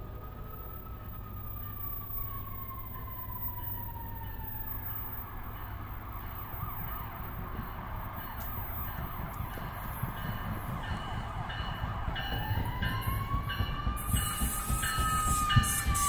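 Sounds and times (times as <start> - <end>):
siren wailing and yelping: 9.4 - 16.0.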